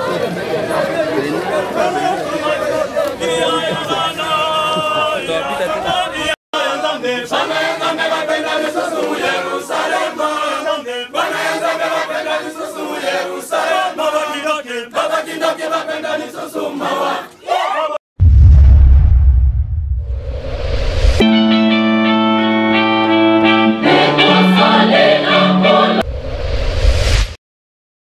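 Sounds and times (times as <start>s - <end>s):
choir and crowd singing: 1.8s - 18.0s, 23.5s - 26.0s
music jingle with heavy bass: 18.2s - 23.7s.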